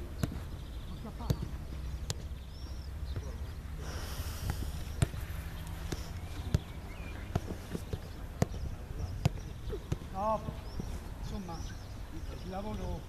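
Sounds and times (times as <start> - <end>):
foot kicking football: 4.4 - 10.9.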